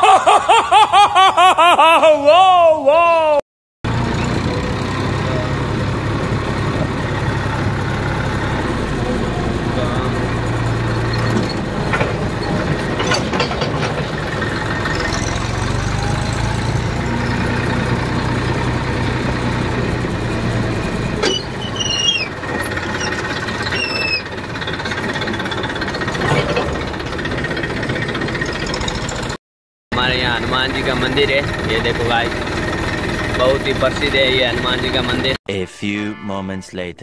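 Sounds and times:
tractor diesel engine running: 3.8 - 29.4, 30.0 - 35.4
short high squeaks: 11.1 - 13.5, 21.2 - 25.0.

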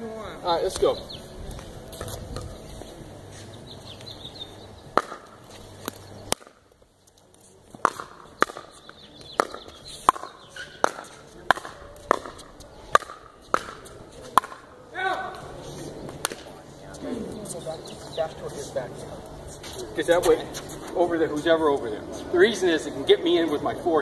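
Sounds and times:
paddles hitting plastic ball: 4.9 - 14.7, 16.1 - 16.5.

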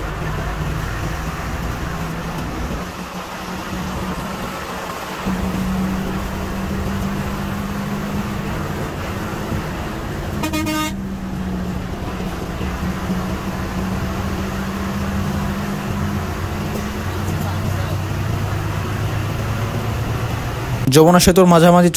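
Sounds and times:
bus engine drone: 0.0 - 21.9
road noise: 0.0 - 21.9
horn blast: 10.3 - 14.0.

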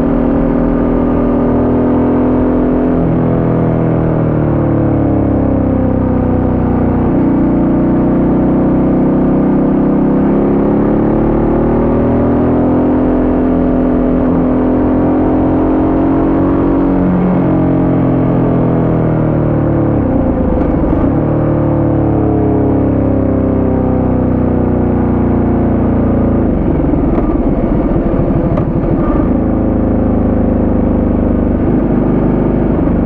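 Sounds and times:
motorcycle engine running: 12.8 - 33.0.

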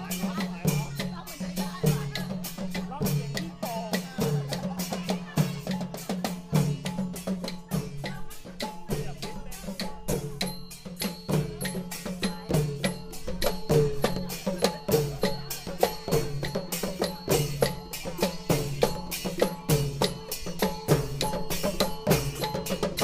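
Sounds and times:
drums playing processional beat: 0.0 - 23.0
ringing metal percussion: 0.0 - 23.0.

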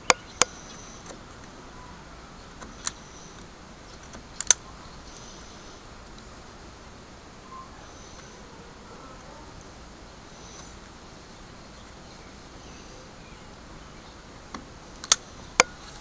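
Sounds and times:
sharp clicks: 0.0 - 1.6, 2.5 - 6.3, 14.5 - 16.0
steady hiss with high whine: 0.0 - 16.0.

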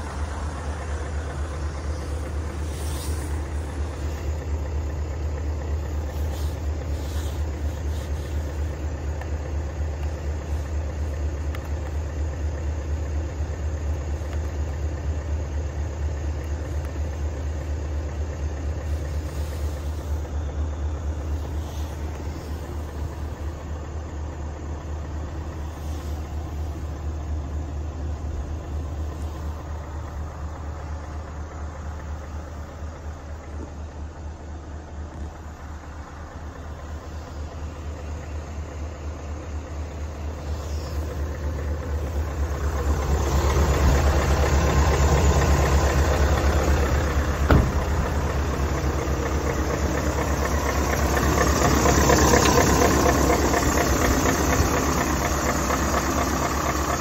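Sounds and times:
diesel engine idling: 0.0 - 57.0.

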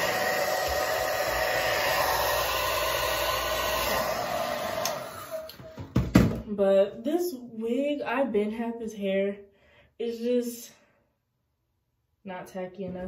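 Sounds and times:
hair dryer blowing: 0.0 - 5.9
click: 4.8 - 5.6.

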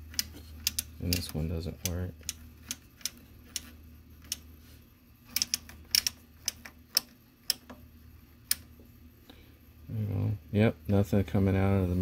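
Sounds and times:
rotary knob detent clicks: 0.1 - 4.4.

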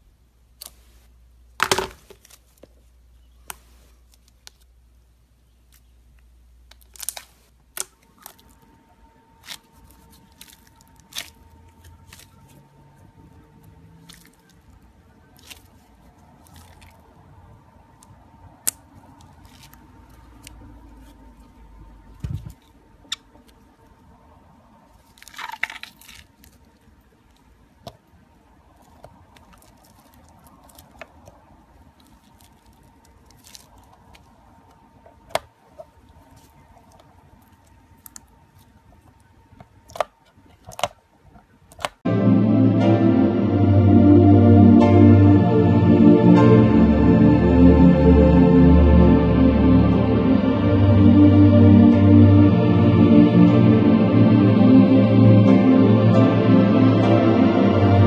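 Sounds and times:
slime squishing: 9.4 - 12.6, 14.0 - 17.1, 28.8 - 41.0.

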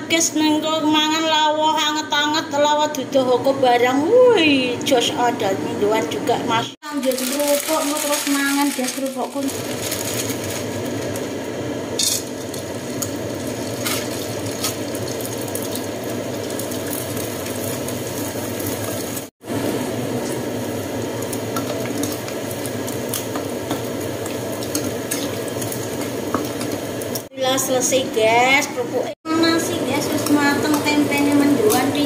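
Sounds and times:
crackers frying in sizzling oil: 6.8 - 32.0.

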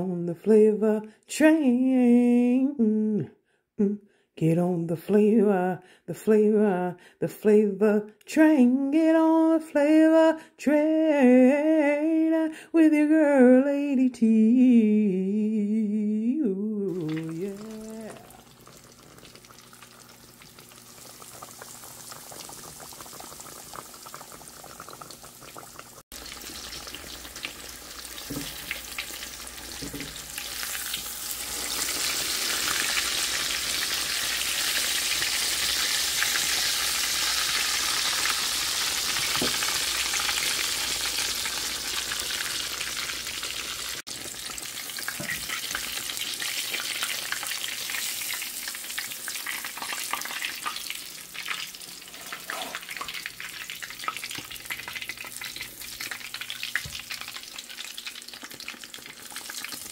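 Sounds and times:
fish frying in hot oil: 16.9 - 59.9
oil crackles and pops: 17.0 - 59.9.

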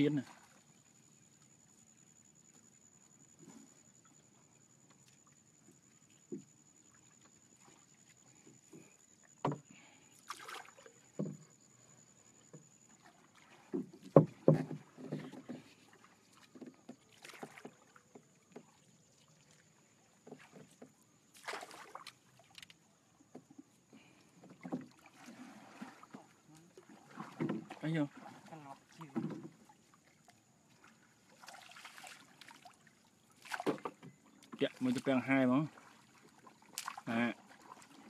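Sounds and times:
water splashes: 0.0 - 38.0
knocks on wooden boat hull: 9.4 - 9.6, 11.2 - 11.4, 13.8 - 15.6.

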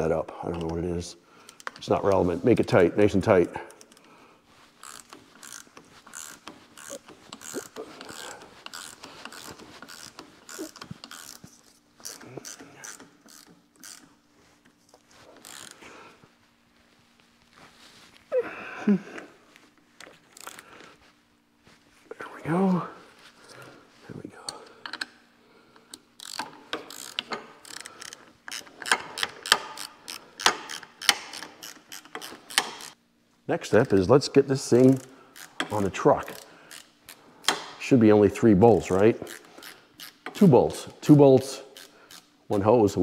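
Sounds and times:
socket ratchet clicking: 4.8 - 14.1, 25.9 - 33.0, 34.8 - 37.8, 39.2 - 40.5, 41.7 - 42.3.

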